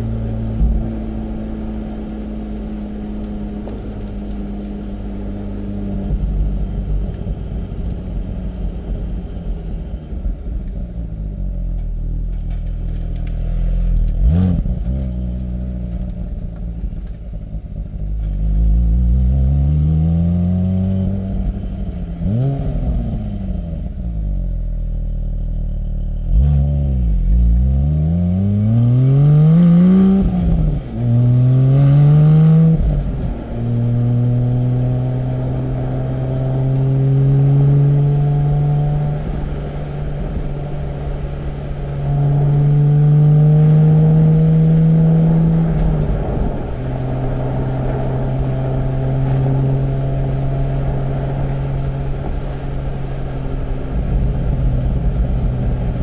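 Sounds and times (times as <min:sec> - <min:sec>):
sports car engine revving: 0:26.2 - 0:56.0.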